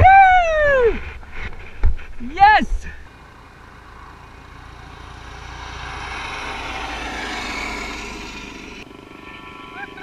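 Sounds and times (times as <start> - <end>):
helicopter flying past: 3.1 - 10.0.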